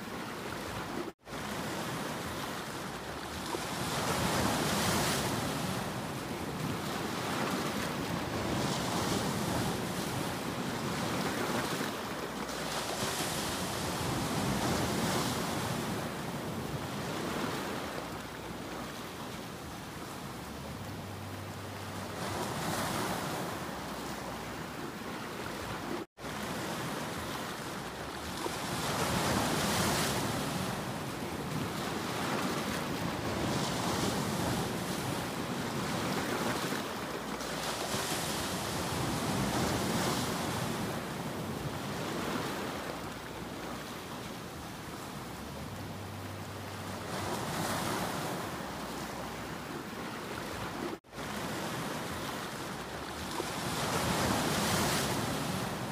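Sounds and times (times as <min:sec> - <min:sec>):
waves breaking over rocks: 0:22.0 - 0:45.7, 0:46.9 - 0:55.9.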